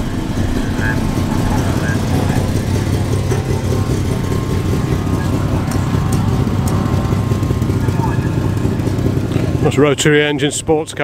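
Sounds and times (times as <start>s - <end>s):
rotary engine idling: 0.0s - 11.0s.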